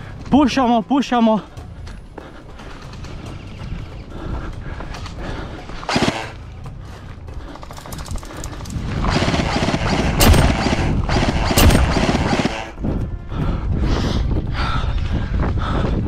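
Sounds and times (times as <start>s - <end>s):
rapid ticks: 7.4s - 12.8s
kit rattle: 7.5s - 12.5s
wind on microphone: 8.0s - 16.0s.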